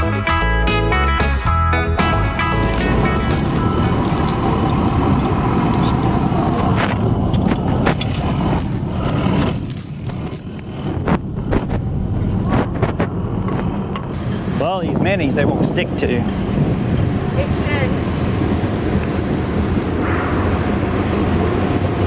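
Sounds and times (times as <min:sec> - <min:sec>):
metallic clanks and jingling: 0:02.1 - 0:06.8, 0:08.0 - 0:10.9.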